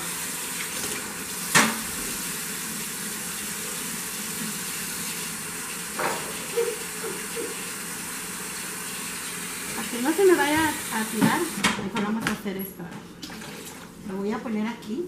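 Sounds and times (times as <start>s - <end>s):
faucet water splashing into metal pan: 5.7s - 11.6s
knock on metal pan: 6.0s - 6.5s.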